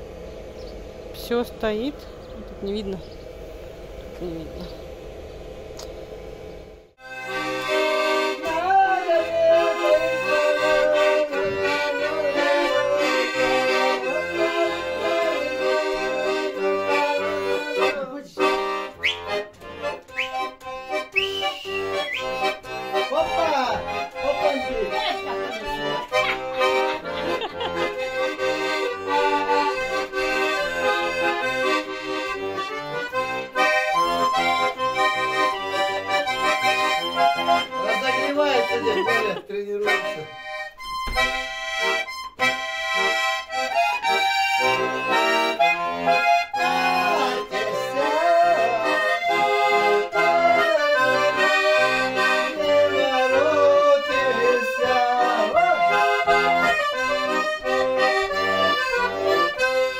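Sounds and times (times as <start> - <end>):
button accordion tune: 0.0 - 59.9.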